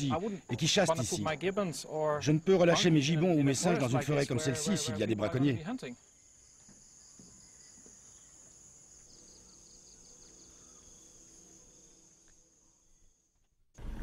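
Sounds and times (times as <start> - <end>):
cricket trill: 0.0 - 13.5
quick insect chirps: 5.7 - 13.6.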